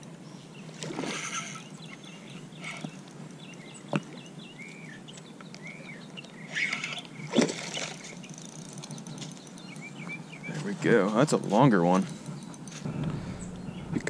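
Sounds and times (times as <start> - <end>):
small birds chirping: 0.0 - 14.0
fish splashing: 6.5 - 8.5.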